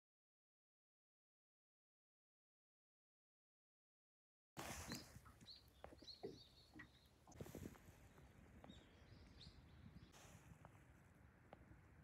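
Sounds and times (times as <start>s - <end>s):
small birds chirping: 4.6s - 10.8s.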